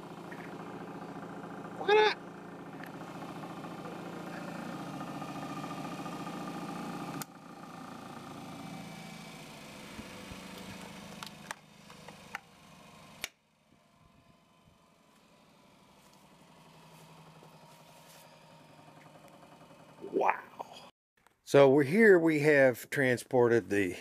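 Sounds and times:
electric motor humming: 0.0 - 13.3.

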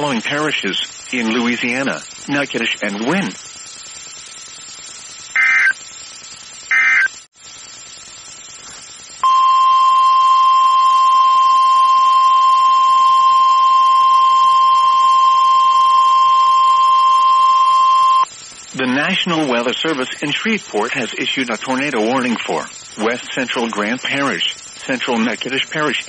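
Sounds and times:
data tone bursts: 5.3 - 5.8, 6.7 - 7.2, 9.2 - 18.3.

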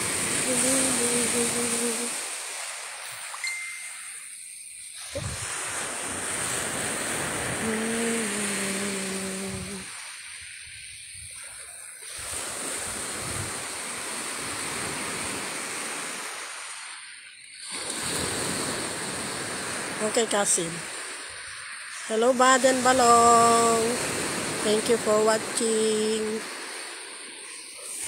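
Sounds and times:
ocean surf breaking: 0.0 - 11.0, 12.0 - 28.0
low steady tone: 3.3 - 4.4.

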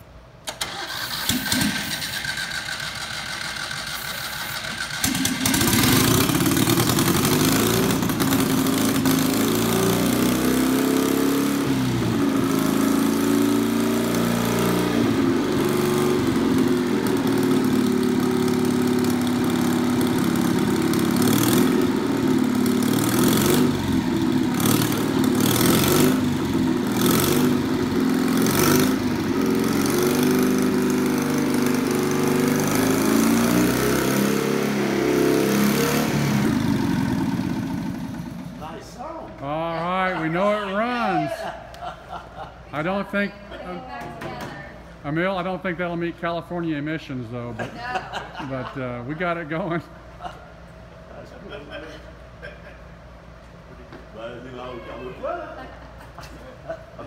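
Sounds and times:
motorbike engine sputtering and revving: 1.2 - 38.6.

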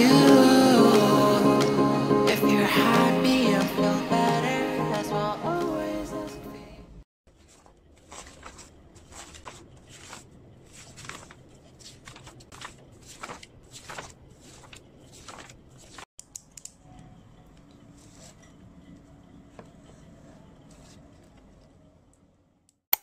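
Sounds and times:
paper pages flipping: 7.3 - 16.1.

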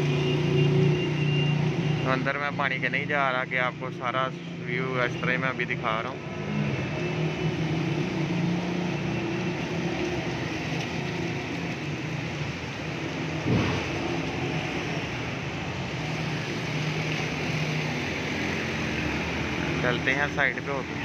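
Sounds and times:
steady street noise: 0.0 - 21.0
vehicle engine humming: 5.6 - 21.0.

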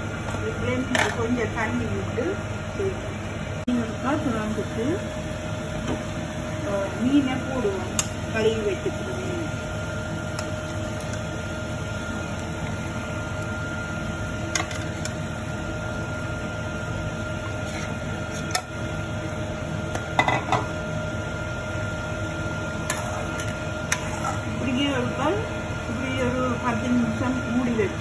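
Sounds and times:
steady hum: 0.0 - 28.0.

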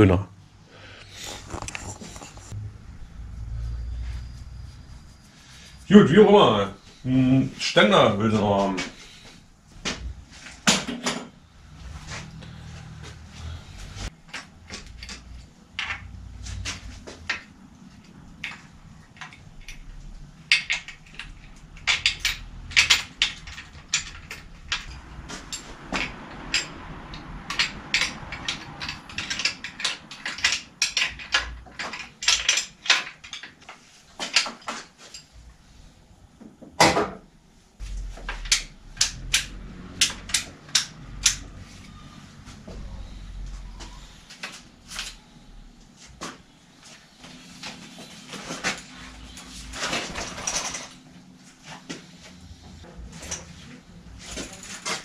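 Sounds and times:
metal tools clicking on bicycle frame: 19.2 - 25.7, 26.3 - 33.7.

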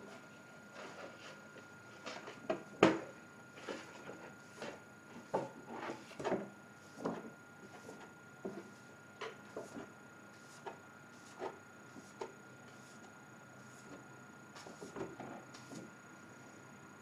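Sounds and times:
brush scrubbing on card: 9.5 - 14.0.

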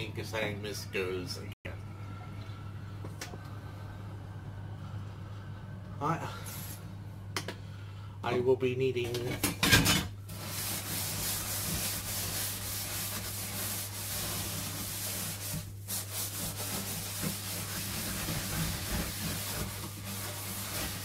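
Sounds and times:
low hum: 1.4 - 8.2
cloth scrubbing a surface: 10.3 - 21.0.

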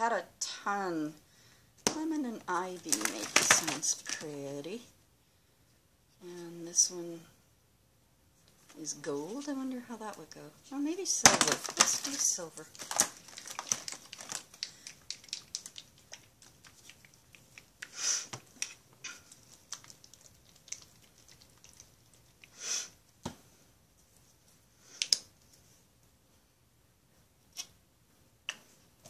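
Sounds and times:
paint bottles clicking and rustling: 2.8 - 4.3, 11.3 - 17.0.

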